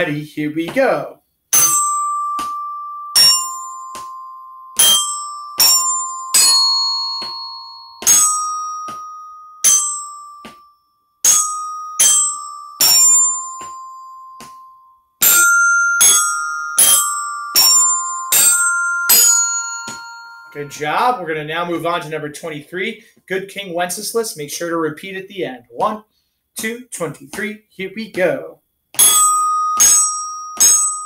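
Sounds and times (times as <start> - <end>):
glockenspiel melody: 1.6 - 22.0, 29.0 - 31.0.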